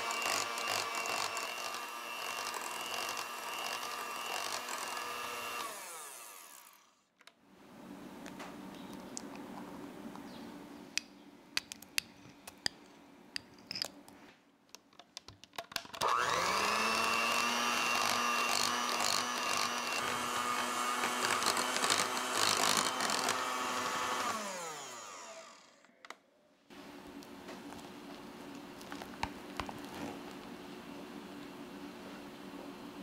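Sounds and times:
electric hand mixer whining: 0.0 - 6.9, 16.0 - 25.8.

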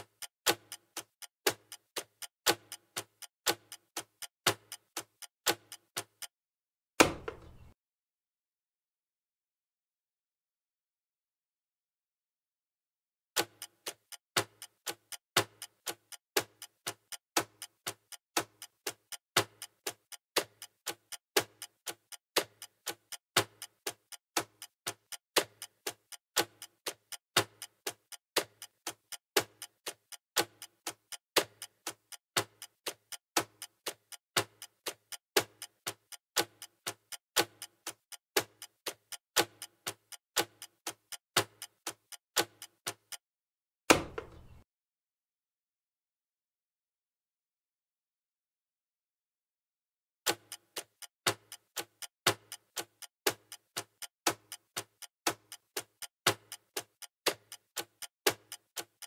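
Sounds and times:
clock ticking: 0.0 - 6.4, 13.4 - 43.2, 50.3 - 59.0.

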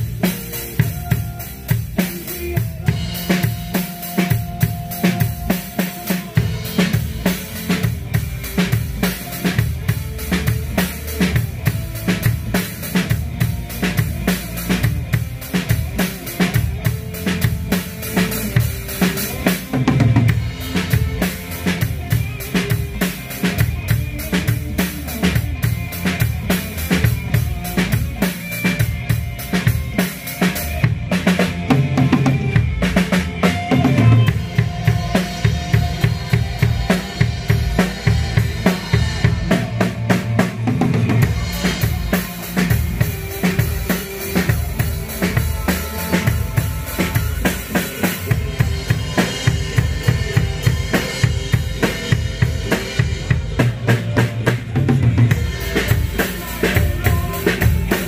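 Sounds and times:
backing track music: 0.0 - 58.0
drum kit steady beat: 0.0 - 58.0.

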